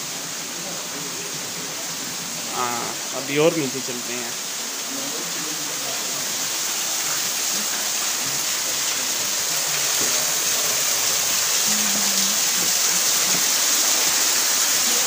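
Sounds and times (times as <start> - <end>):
water trickling down rock: 8.8 - 15.0.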